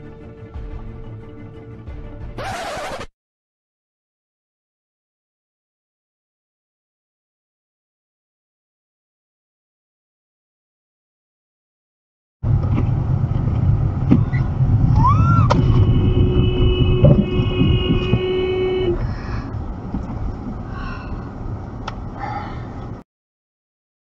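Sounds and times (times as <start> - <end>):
car road and engine rumble: 12.4 - 23.0
car horn: 15.5 - 19.1.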